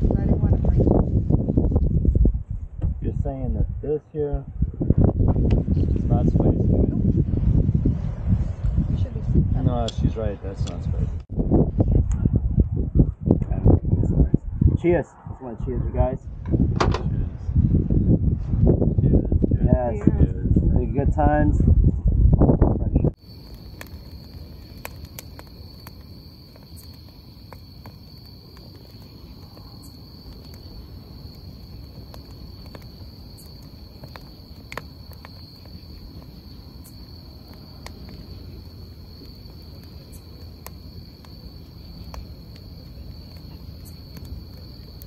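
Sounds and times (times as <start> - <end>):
sharp fire pops: 4.9 - 6.2, 22.3 - 45.0
wood fire crackling: 23.1 - 45.0
high-pitched insect trill: 23.2 - 45.0.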